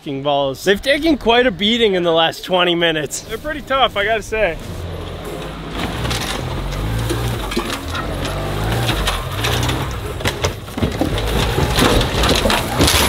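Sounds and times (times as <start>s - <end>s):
small truck engine revving: 3.2s - 13.0s
logs cracking under wheels: 4.6s - 13.0s.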